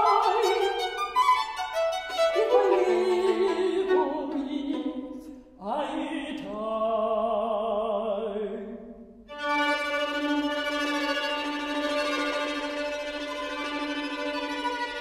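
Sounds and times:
woman singing with vibrato: 0:00.0 - 0:01.2, 0:02.2 - 0:08.6.

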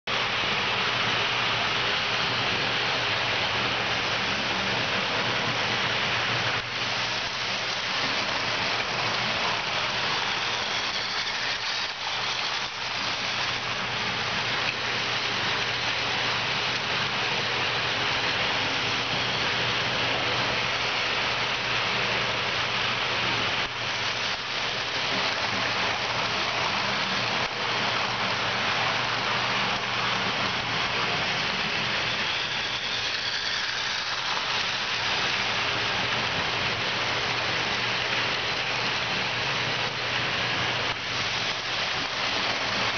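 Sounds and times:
model train wheels rattling on track: 0:05.4 - 0:21.3, 0:23.2 - 0:39.3, 0:40.8 - 0:42.9.

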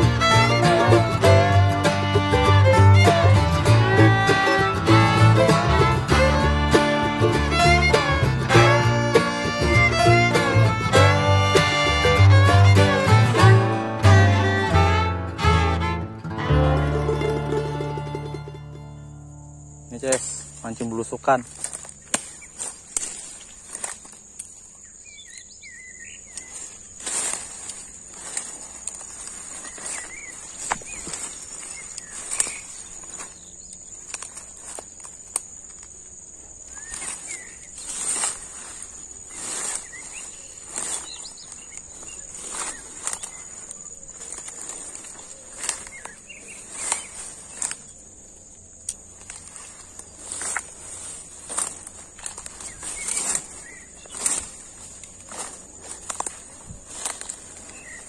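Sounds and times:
footsteps through brush: 0:00.0 - 0:16.0, 0:19.9 - 0:58.0
insects droning: 0:00.0 - 0:58.0
faint bird chirps: 0:24.7 - 0:28.0, 0:29.0 - 0:34.1, 0:36.7 - 0:48.0.

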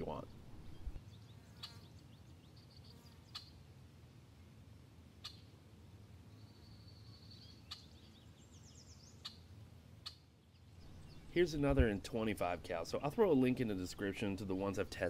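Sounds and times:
faint bird chirps: 0:00.6 - 0:03.6, 0:06.3 - 0:11.5.

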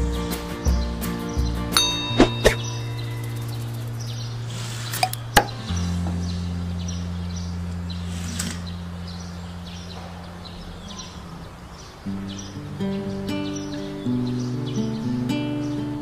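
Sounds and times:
bird chirps: 0:01.2 - 0:16.0
long held low chord: 0:01.8 - 0:11.1.

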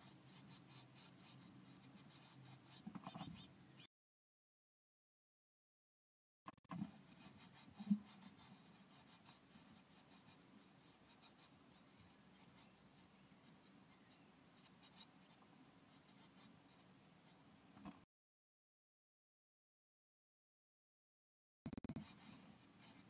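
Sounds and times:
chicks scratching and rustling: 0:00.0 - 0:03.9, 0:06.7 - 0:17.5.

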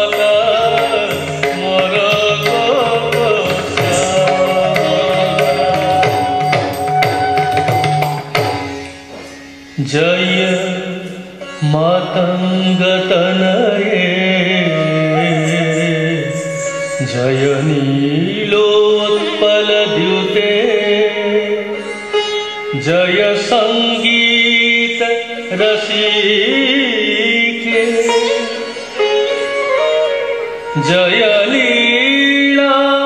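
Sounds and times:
rhythmic drum strokes: 0:00.0 - 0:09.4
gliding sung melody: 0:00.0 - 0:33.0.

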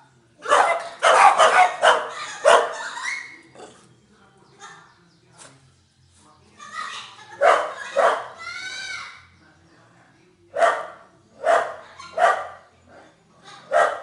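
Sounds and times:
small dog barking: 0:00.4 - 0:02.8, 0:07.4 - 0:08.4, 0:10.6 - 0:12.6, 0:13.7 - 0:14.0
dog yelping: 0:00.5 - 0:03.4, 0:07.4 - 0:08.4.

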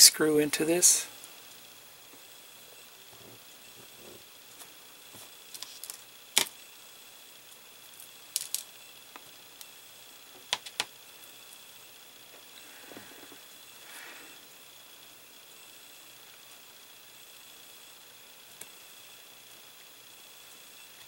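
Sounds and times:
clicks of small metal parts: 0:08.3 - 0:08.7.

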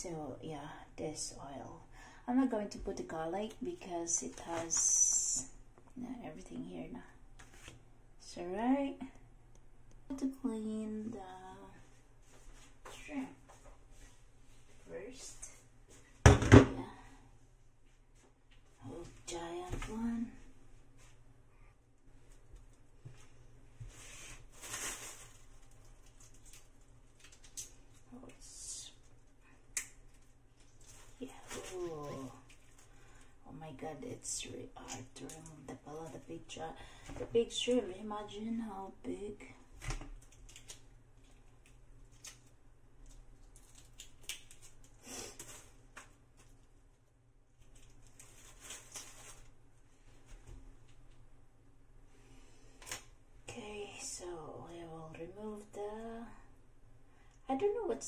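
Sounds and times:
plastic bag crinkling: 0:24.4 - 0:28.1, 0:30.0 - 0:33.3, 0:43.2 - 0:46.7, 0:47.5 - 0:49.6.

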